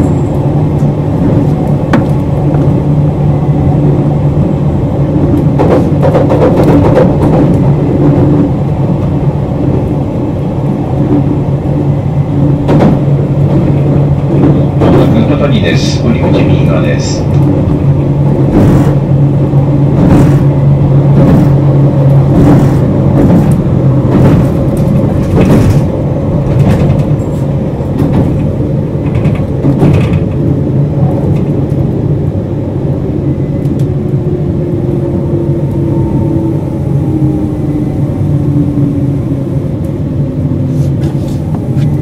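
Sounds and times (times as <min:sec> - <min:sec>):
train wheels clicking over rail joints: 0:05.3 - 0:08.4, 0:17.3 - 0:19.1, 0:19.9 - 0:31.8.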